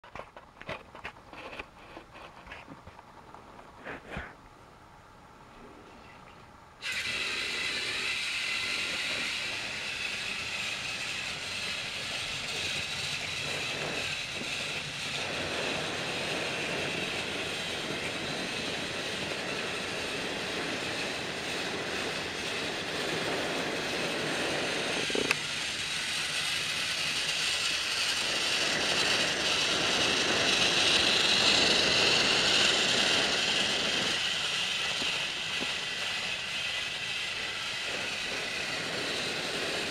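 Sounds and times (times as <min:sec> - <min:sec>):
toy train motor whir: 0:06.8 - 0:39.9
wheels clattering on plastic track: 0:06.8 - 0:39.9.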